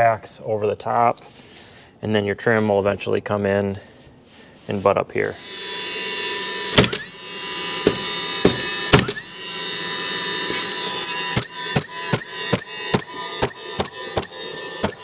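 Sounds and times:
nailer motor whirring: 0:05.3 - 0:15.0
nail gun shots: 0:07.9 - 0:09.2.

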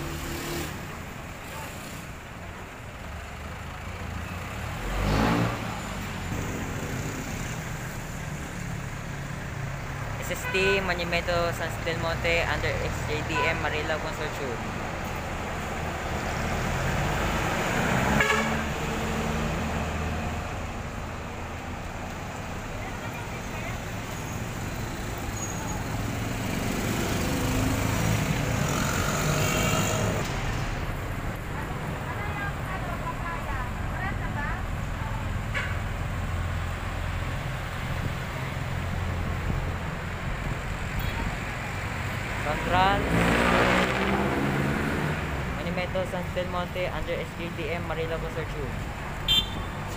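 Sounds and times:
bus engine running: 0:00.0 - 0:04.9
vehicle engine rumbling: 0:00.0 - 0:49.9
vehicles passing: 0:00.0 - 0:49.9
vehicle horn toot: 0:18.2 - 0:18.7, 0:49.3 - 0:49.8.

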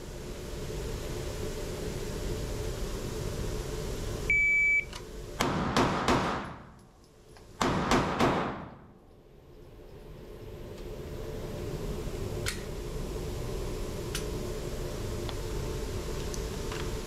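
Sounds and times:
shot timer beep: 0:04.3 - 0:04.9
pistol shots echoing: 0:05.4 - 0:06.7, 0:07.6 - 0:08.8.

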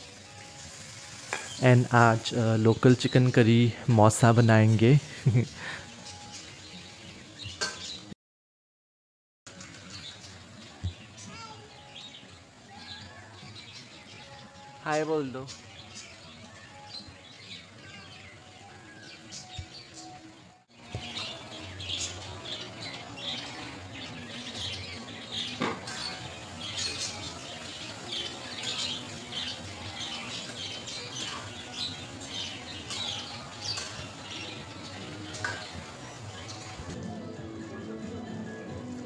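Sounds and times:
faint music: 0:00.0 - 0:08.2, 0:09.5 - 0:39.0
birds chirping and squawking: 0:00.8 - 0:08.1, 0:09.5 - 0:37.0.

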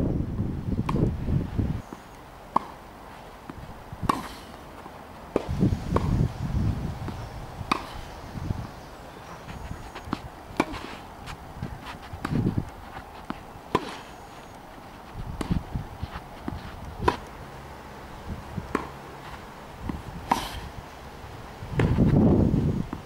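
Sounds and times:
wind rumble on microphone: 0:00.0 - 0:01.8, 0:05.4 - 0:13.6, 0:14.7 - 0:23.0
tennis ball struck and bouncing: 0:01.9 - 0:02.8, 0:03.4 - 0:06.2, 0:07.0 - 0:08.1, 0:09.5 - 0:14.6, 0:15.2 - 0:17.4, 0:18.6 - 0:19.2, 0:19.8 - 0:20.7, 0:21.8 - 0:22.1.

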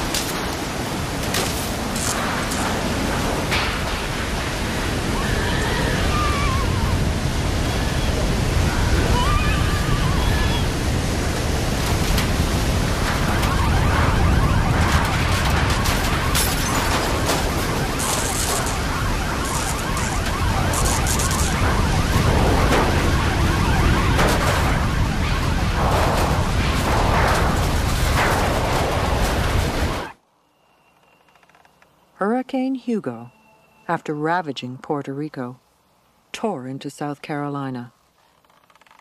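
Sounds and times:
driving rain: 0:00.0 - 0:30.2
strong wind: 0:00.0 - 0:30.2.

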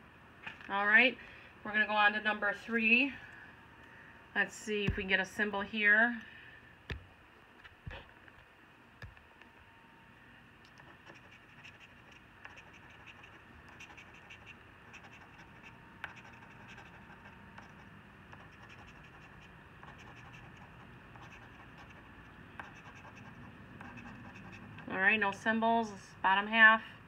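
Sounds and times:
coin scratching a lottery ticket: 0:10.8 - 0:24.9.

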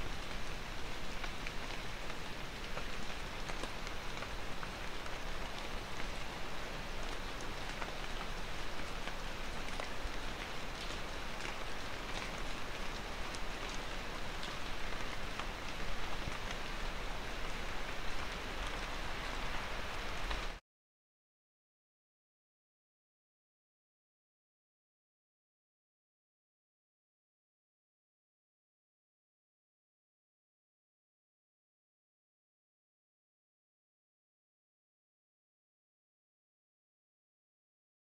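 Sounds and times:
steady rain falling: 0:00.0 - 0:20.6.

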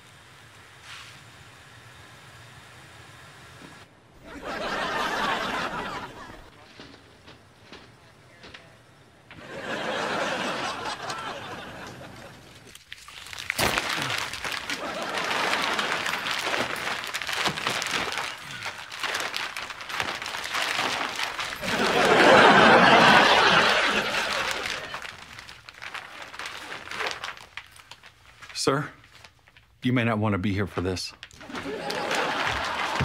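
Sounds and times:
crowd laughing: 0:04.2 - 0:07.0, 0:09.3 - 0:12.7, 0:14.0 - 0:17.0, 0:20.7 - 0:25.4, 0:31.4 - 0:33.0.

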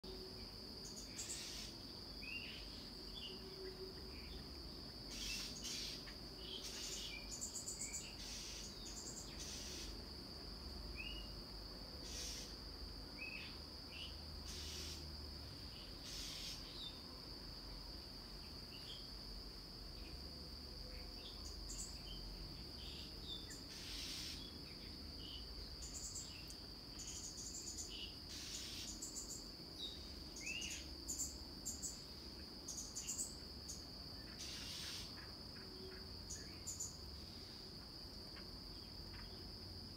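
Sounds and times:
high-pitched insect drone: 0:05.1 - 0:10.0.

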